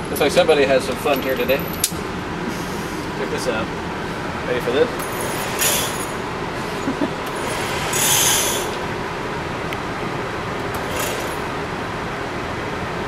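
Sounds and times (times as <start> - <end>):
motorized target carrier running: 4.7 - 9.0, 10.5 - 11.7.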